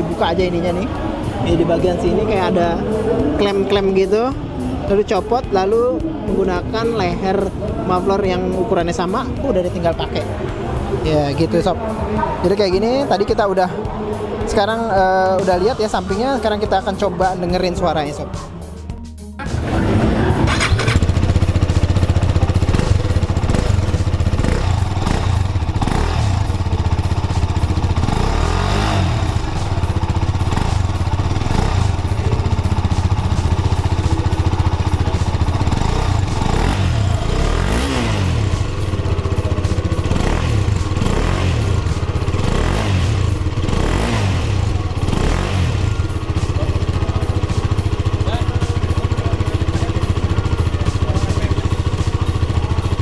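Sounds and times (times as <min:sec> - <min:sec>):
motorcycle engine idling: 0:00.0 - 0:53.0
engine throttle blips: 0:18.2 - 0:53.0.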